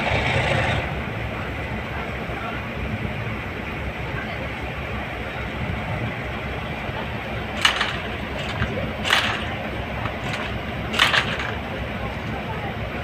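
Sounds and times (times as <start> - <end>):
train wheels rumbling on track: 0.0 - 13.0
wheels clacking over rail joints: 6.5 - 13.0.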